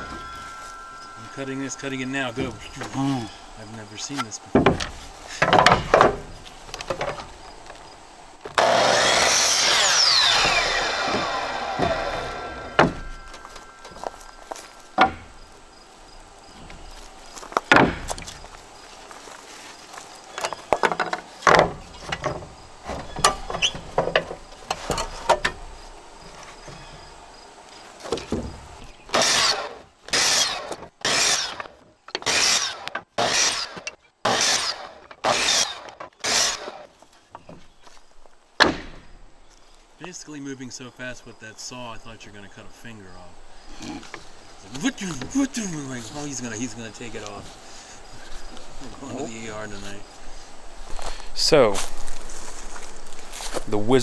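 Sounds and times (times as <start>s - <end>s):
boards knocking and clattering: 4.0s - 7.8s, 10.2s - 15.4s, 17.4s - 18.5s, 20.4s - 25.6s, 28.0s - 29.5s, 30.2s - 38.0s, 38.6s - 39.2s
saw cutting through wood: 8.5s - 14.0s, 29.1s - 36.9s.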